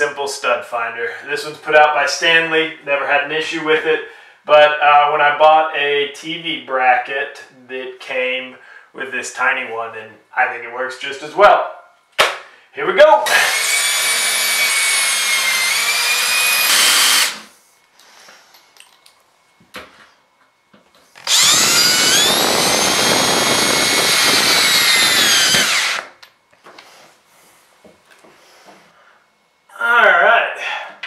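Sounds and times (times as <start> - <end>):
cordless drill whining: 13.2 - 17.5, 21.2 - 26.2
wind noise on microphone: 21.3 - 25.7.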